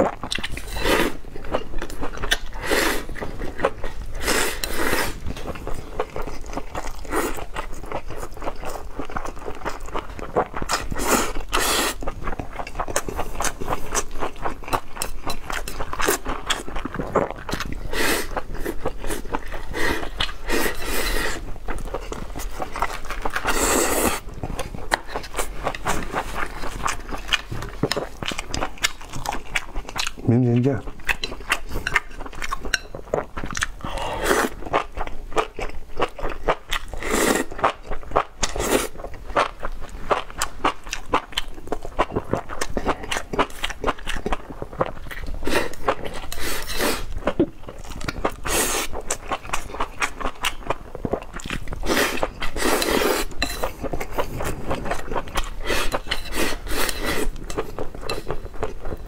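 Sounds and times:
wet chewing and smacking: 0.0s - 59.0s
chopsticks scraping a ceramic bowl: 46.1s - 47.0s, 52.2s - 53.9s, 55.3s - 58.6s.

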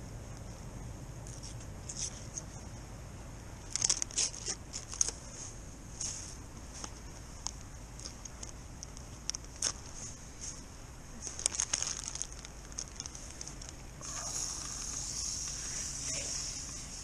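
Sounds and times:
plastic and paper crinkling: 3.7s - 5.4s, 9.3s - 16.2s.

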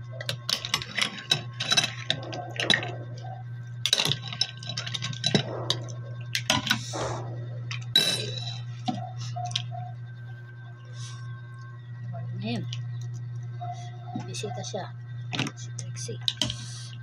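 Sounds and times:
steady low hum: 0.0s - 17.0s
spoon and shells clinking on dishes: 0.4s - 2.9s, 3.9s - 5.8s, 8.0s - 8.7s.

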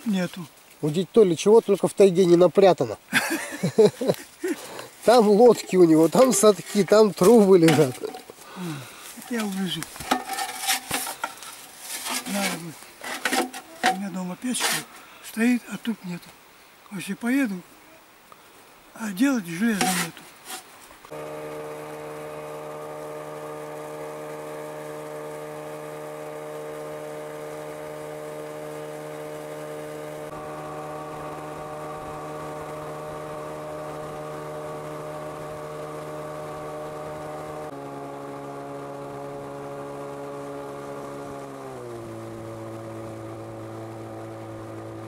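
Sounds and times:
motorboat engine droning: 4.6s - 11.4s, 21.1s - 45.0s.

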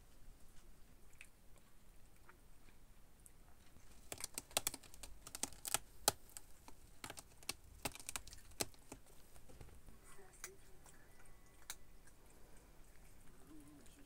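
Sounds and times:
cat claws scratching rope post: 3.9s - 9.4s.

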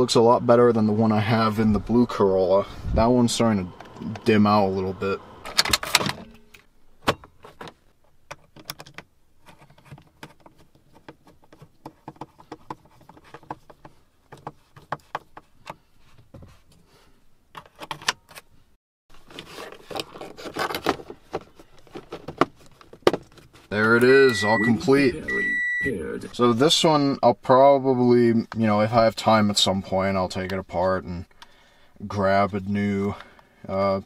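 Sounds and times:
plastic panel clicks and rattles: 7.0s - 15.8s.

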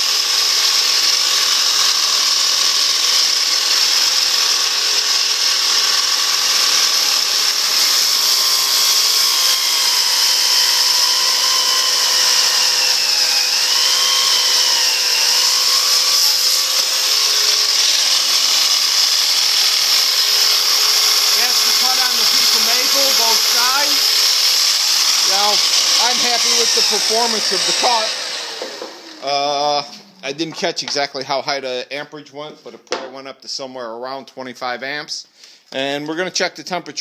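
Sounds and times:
miter saw cutting wood: 0.0s - 30.9s
dust extractor running: 3.4s - 30.3s.

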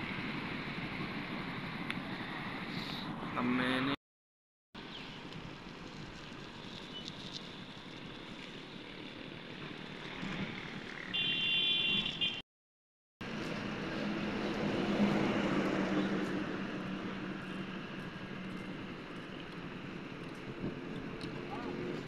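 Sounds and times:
passing motor vehicles humming: 13.2s - 22.0s.

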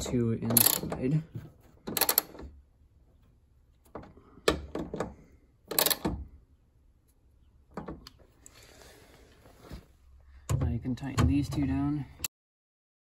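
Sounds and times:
ratchet metallic clicks: 0.5s - 1.0s, 1.9s - 2.4s, 5.7s - 6.0s.

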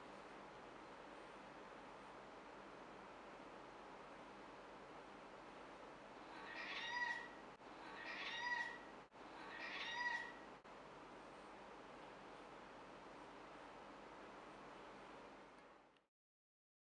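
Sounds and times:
cat meowing: 6.2s - 10.5s.

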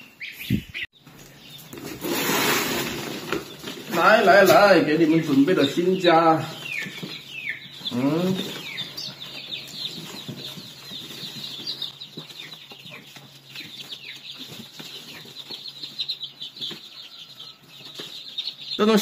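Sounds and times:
chicks peeping: 0.0s - 19.0s
rustling and handling sounds: 1.0s - 5.8s, 6.4s - 18.3s.

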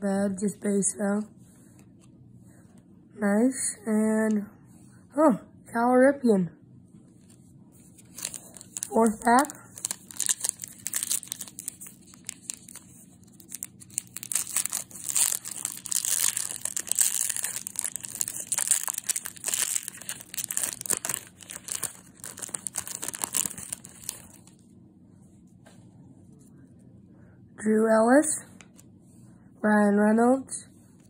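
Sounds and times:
foil wrapper tearing and crinkling: 8.1s - 24.5s.

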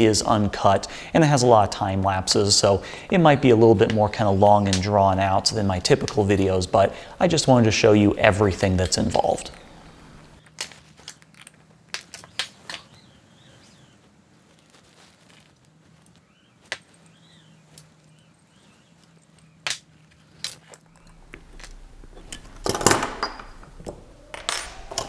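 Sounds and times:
metal parts clicking and clinking: 10.4s - 12.3s, 20.3s - 25.0s.

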